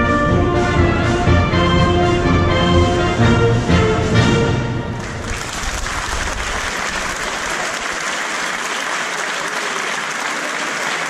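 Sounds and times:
concert band low notes: 0.0 - 8.0
audience applauding: 5.0 - 11.0.

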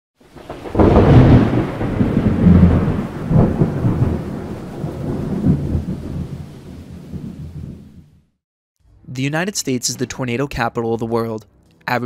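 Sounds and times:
thunder cracking and rumbling: 0.3 - 8.3.

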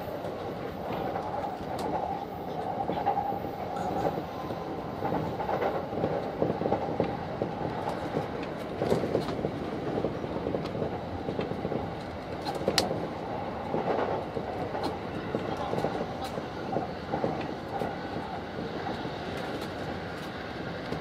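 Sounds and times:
train wheels on rail: 0.0 - 21.0
sharp rail clicks: 10.6 - 18.2.

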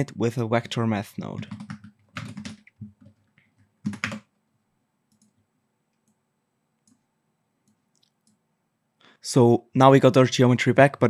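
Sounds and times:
keyboard typing: 1.3 - 4.3, 5.1 - 6.2.

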